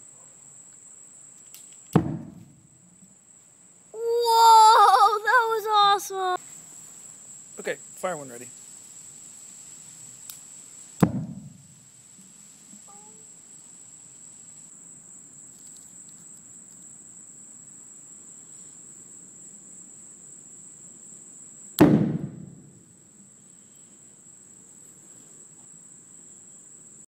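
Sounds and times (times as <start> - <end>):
carbide cannon boom: 1.9 - 2.7, 11.0 - 11.7, 21.8 - 22.8.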